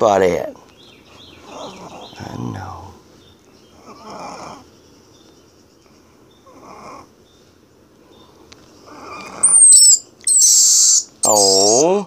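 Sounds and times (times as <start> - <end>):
baby squirrel squealing: 3.7 - 4.7, 8.8 - 12.0.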